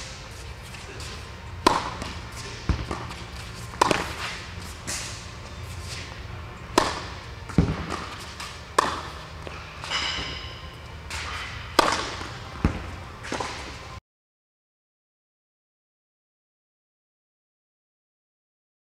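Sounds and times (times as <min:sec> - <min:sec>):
racket hitting tennis ball: 0:00.0 - 0:13.9
ball bouncing thud: 0:01.6 - 0:03.2, 0:03.8 - 0:04.2, 0:06.7 - 0:09.1, 0:11.1 - 0:13.6.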